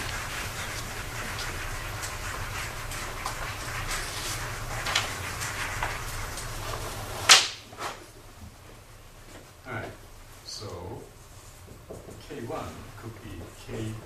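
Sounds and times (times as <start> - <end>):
marker writing on whiteboard: 0.0 - 6.6
low room hum: 0.0 - 14.0.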